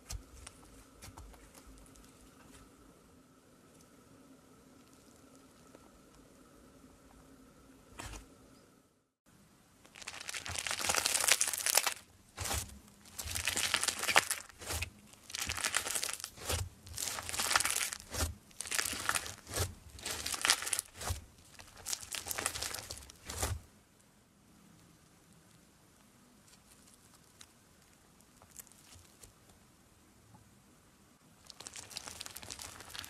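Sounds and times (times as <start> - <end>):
slime crackling and crinkling: 9.8 - 23.7, 26.4 - 29.5, 31.4 - 33.0.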